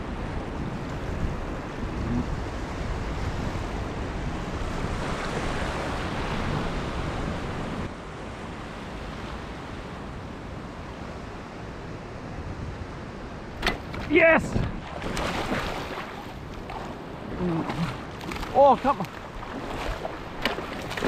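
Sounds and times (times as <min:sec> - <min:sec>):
wind noise on microphone: 0:00.0 - 0:09.4, 0:11.6 - 0:18.5
shallow sea water washing: 0:13.6 - 0:21.0.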